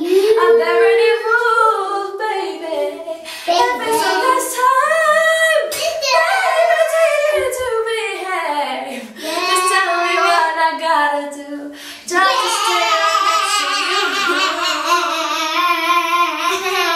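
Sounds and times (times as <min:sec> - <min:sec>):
woman singing unaccompanied: 0:00.0 - 0:13.2.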